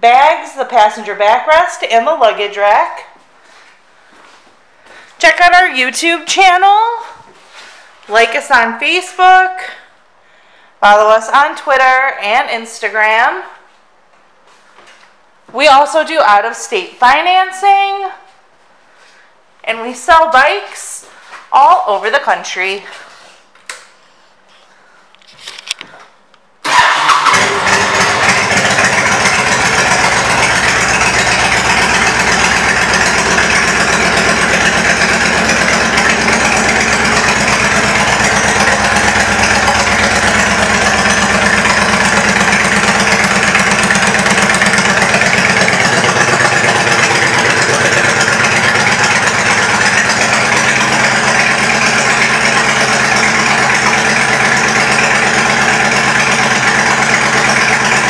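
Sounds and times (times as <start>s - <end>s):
motorcycle starting and idling: 26.6s - 58.0s.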